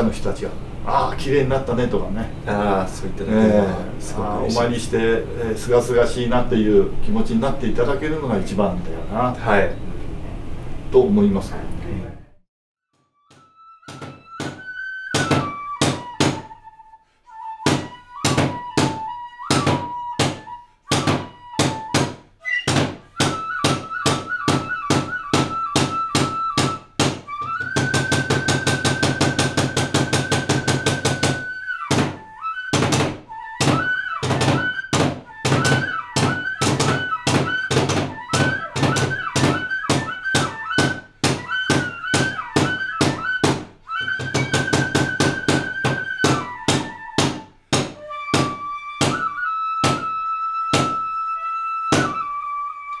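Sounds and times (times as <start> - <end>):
flute holding long notes: 13.0 - 53.0
drums beating: 13.9 - 16.5, 17.6 - 50.1.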